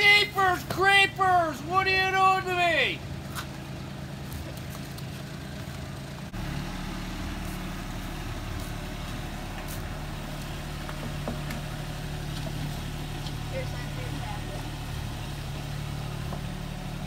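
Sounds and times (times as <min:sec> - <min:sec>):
low mechanical hum: 0:02.3 - 0:17.0.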